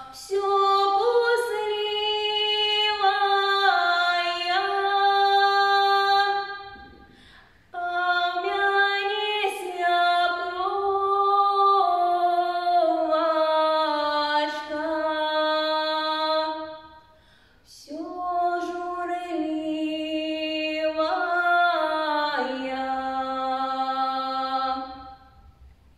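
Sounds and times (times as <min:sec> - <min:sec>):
woman singing a cappella: 0:00.0 - 0:07.0, 0:07.7 - 0:17.1, 0:17.7 - 0:25.4.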